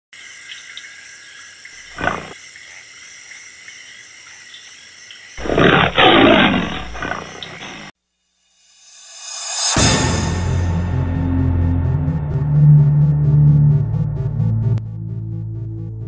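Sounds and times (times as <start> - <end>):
lion call: 1.9 - 2.4, 5.4 - 7.9
lion roaring: 1.9 - 2.4, 5.4 - 7.9.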